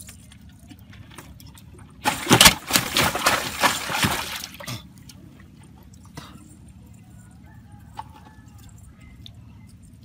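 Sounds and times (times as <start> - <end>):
fish thrashing and splashing: 0.0 - 6.1.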